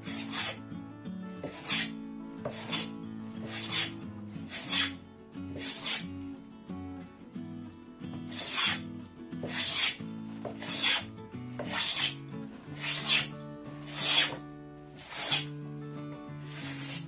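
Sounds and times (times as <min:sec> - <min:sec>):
hand plane shaving wood: 0:00.0 - 0:00.6, 0:01.4 - 0:06.0, 0:08.2 - 0:08.8, 0:09.4 - 0:15.5, 0:16.4 - 0:17.0
soft background music: 0:00.0 - 0:17.0.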